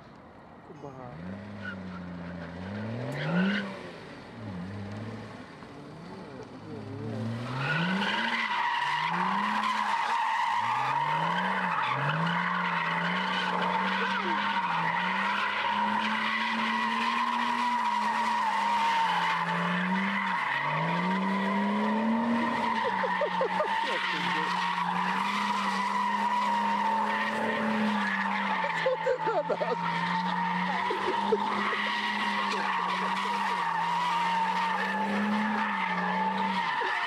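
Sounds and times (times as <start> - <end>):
car engine revving: 1.0 - 37.0
tyres squealing: 7.6 - 37.0.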